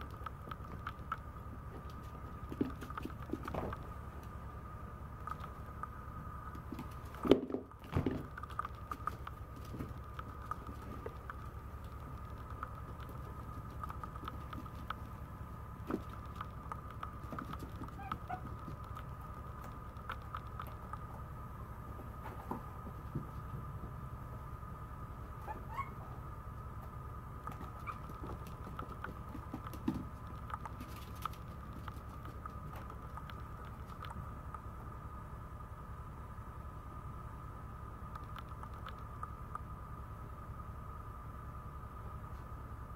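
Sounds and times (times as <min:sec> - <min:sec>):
puppy claws tapping on floor: 0:06.6 - 0:15.1, 0:15.8 - 0:21.1, 0:27.5 - 0:34.2.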